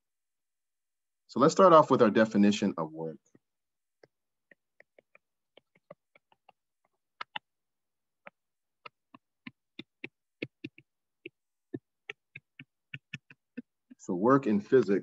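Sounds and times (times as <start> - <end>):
stylus tapping on a tablet: 3.3 - 7.5, 8.2 - 14.0.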